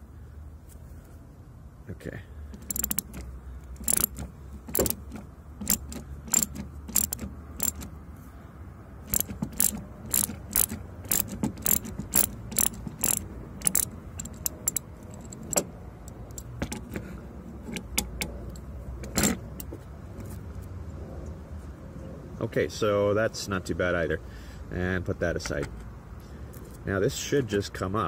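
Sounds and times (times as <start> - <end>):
ratchet wrench clicking: 2.5 - 7.9, 9.1 - 17.0.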